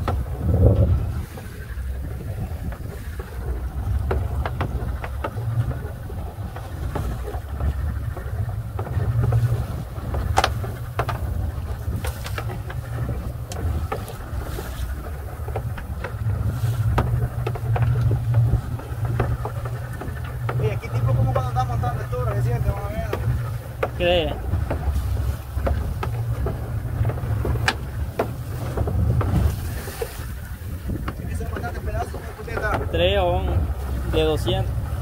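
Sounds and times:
choppy sea washing: 0:00.0 - 0:35.0
wind rumbling on microphone: 0:00.0 - 0:35.0
sharp clicks and knocks: 0:02.6 - 0:30.2.

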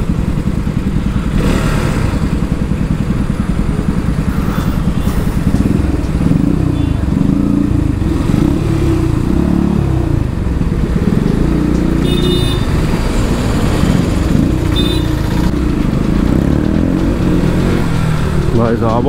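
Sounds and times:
loud motorcycle exhaust: 0:00.0 - 0:19.0
vehicle horn beeps: 0:06.6 - 0:07.2, 0:12.0 - 0:12.8, 0:14.7 - 0:15.4.

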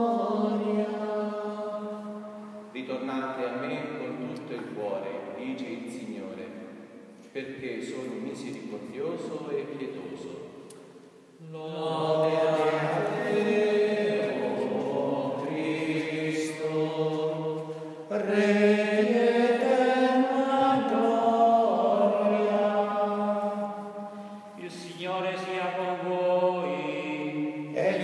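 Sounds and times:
man singing a chant: 0:11.4 - 0:16.9, 0:24.6 - 0:28.0.

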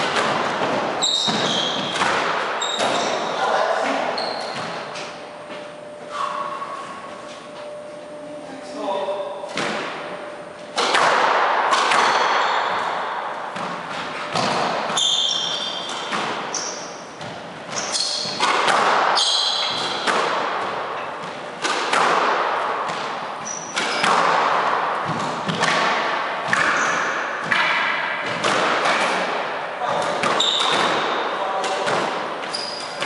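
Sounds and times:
ball smacking court walls: 0:00.0 - 0:03.3, 0:09.5 - 0:10.1, 0:10.7 - 0:33.0
racket striking ball: 0:00.0 - 0:03.3, 0:09.5 - 0:33.0
shoes squeaking on wooden floor: 0:00.6 - 0:02.0, 0:02.6 - 0:03.3, 0:04.2 - 0:07.7, 0:14.1 - 0:18.4, 0:23.4 - 0:24.2, 0:30.3 - 0:31.0, 0:32.4 - 0:33.0.

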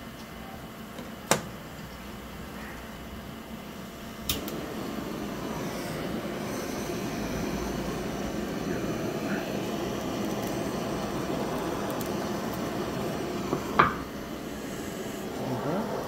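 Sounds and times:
blowtorch flame hissing: 0:04.1 - 0:16.0.

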